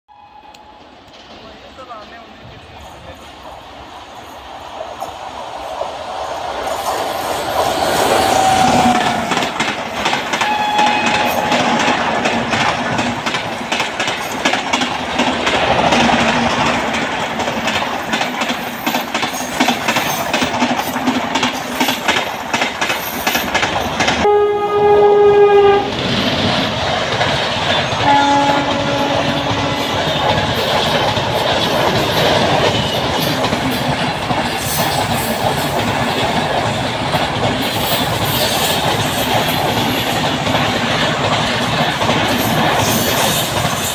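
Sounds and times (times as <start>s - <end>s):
train horn blast: 0.1s - 0.8s, 10.4s - 11.9s, 24.2s - 26.0s, 28.0s - 30.7s
train rushing past: 0.1s - 43.9s
wheels clacking over rail joints: 4.9s - 24.3s, 24.9s - 43.9s.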